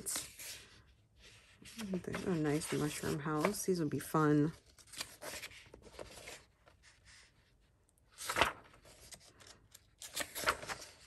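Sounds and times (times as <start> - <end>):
paper pages rustling: 0.0 - 11.0.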